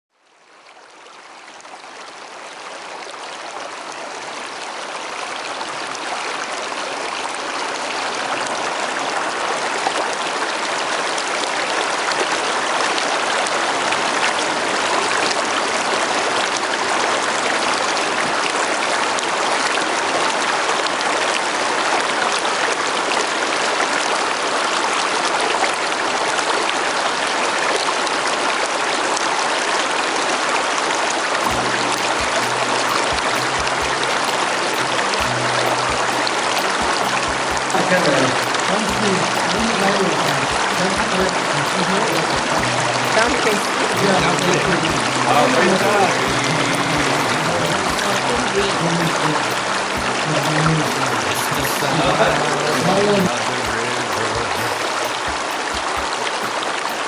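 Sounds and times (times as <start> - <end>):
stream water running over rocks: 0.4 - 57.0.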